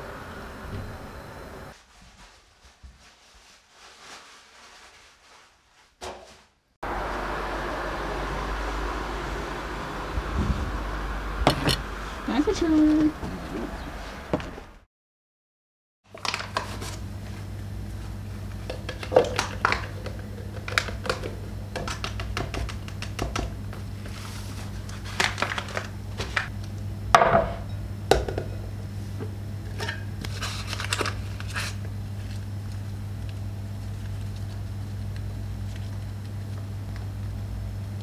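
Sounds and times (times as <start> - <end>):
steady low hum: 0.0 - 2.8, 6.8 - 14.4, 16.6 - 38.0
packaging rustling: 1.8 - 6.5, 16.1 - 17.0, 24.0 - 26.5, 30.3 - 36.7.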